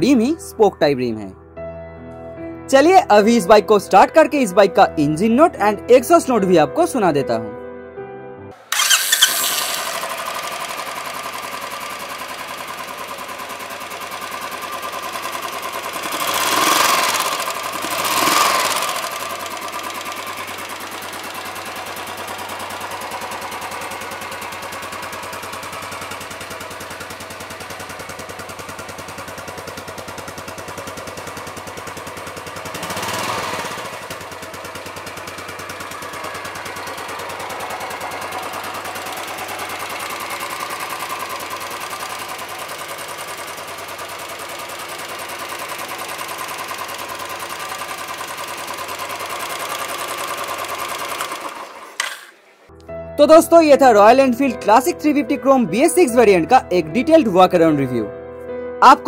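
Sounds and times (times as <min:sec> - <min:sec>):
motorcycle engine idling and revving: 0:08.6 - 0:52.7.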